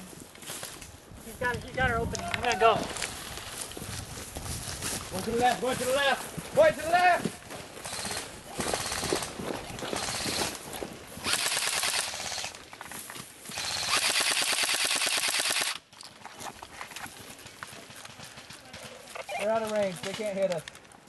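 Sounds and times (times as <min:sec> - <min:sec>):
airsoft rifles firing full-auto: 0:07.8 - 0:10.6, 0:11.2 - 0:12.6, 0:13.5 - 0:15.8.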